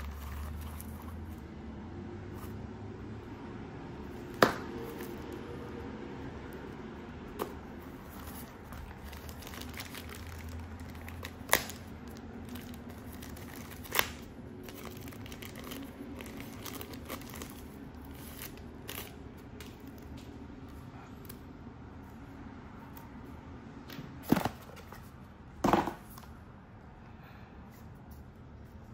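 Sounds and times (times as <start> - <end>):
plastic crinkling and rustling: 0.0 - 1.4, 7.5 - 20.4.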